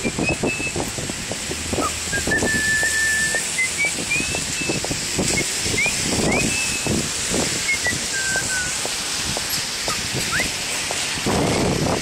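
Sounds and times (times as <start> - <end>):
person whistling a slow tune: 0.0 - 0.8, 1.8 - 6.9, 7.7 - 8.8, 10.3 - 10.5
rain hissing: 0.0 - 12.0
footstep thumps: 8.7 - 11.6.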